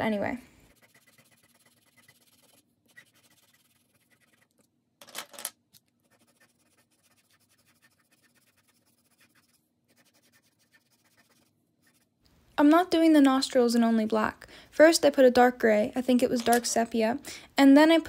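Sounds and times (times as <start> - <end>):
pencil scratching on paper: 0.6 - 4.6, 6.0 - 12.1
scratchy rasp: 0.6 - 4.6, 6.0 - 12.1.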